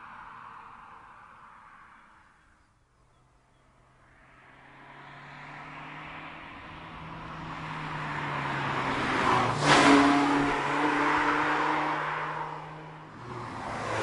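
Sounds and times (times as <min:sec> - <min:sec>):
car engine approaching: 0:03.4 - 0:14.0.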